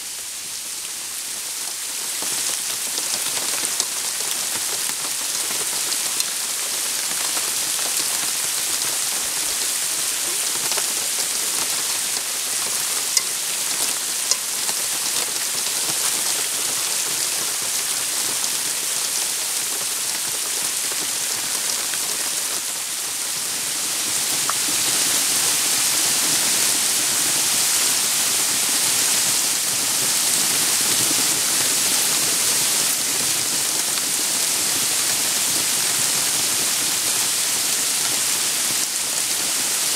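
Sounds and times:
rain falling on trees: 0:00.0 - 0:39.9
single raindrops hitting close: 0:13.1 - 0:14.8.

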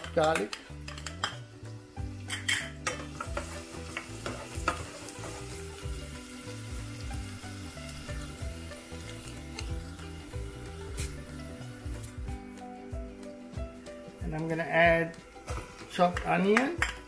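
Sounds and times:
spices sizzling in hot fat: 0:00.0 - 0:17.0.

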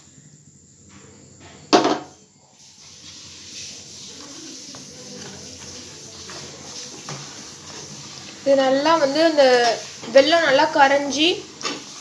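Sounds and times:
stirring thick porridge: 0:02.6 - 0:12.0.

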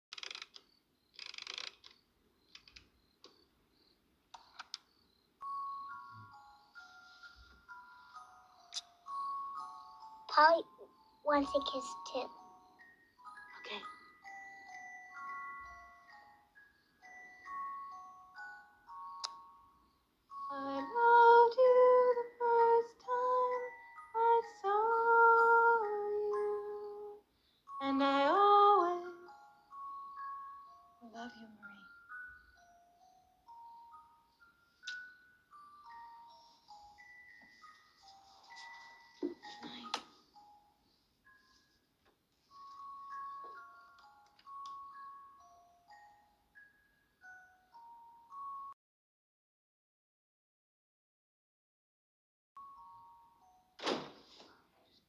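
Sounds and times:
music box playing slow tune: 0:01.8 - 0:48.8, 0:52.6 - 0:53.8
woman singing a lullaby: 0:20.3 - 0:32.1.

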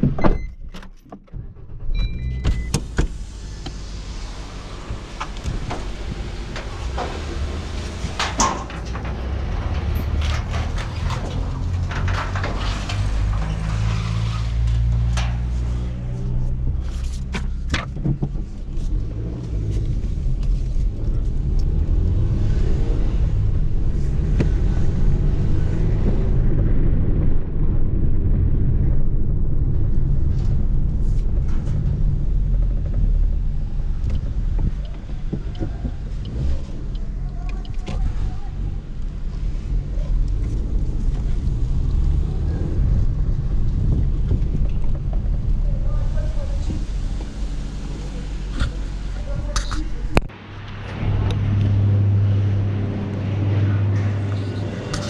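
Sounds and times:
car engine rumbling: 0:00.0 - 0:55.0
sharp clicks and knocks: 0:05.2 - 0:18.6.

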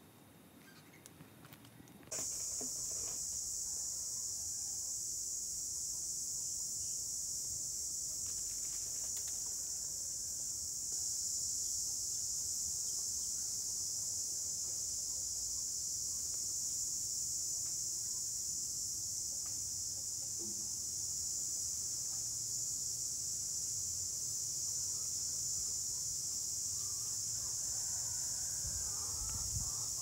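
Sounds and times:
high-pitched insect chorus: 0:02.1 - 0:30.0.

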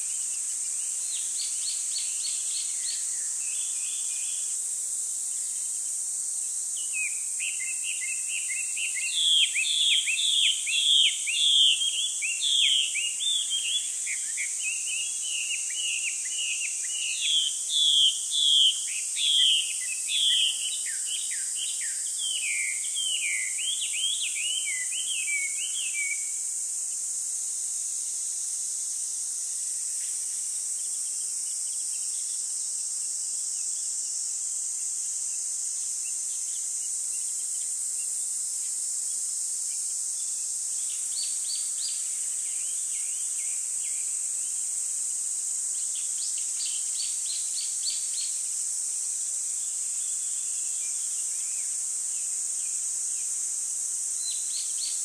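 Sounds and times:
steady high-pitched hiss: 0:00.0 - 0:55.0
small birds chirping: 0:05.2 - 0:26.4.

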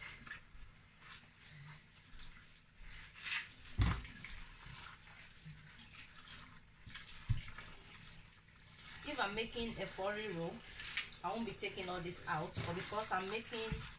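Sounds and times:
hands rubbing wet leaves: 0:00.0 - 0:13.9
tap water running into sink: 0:03.7 - 0:13.9.

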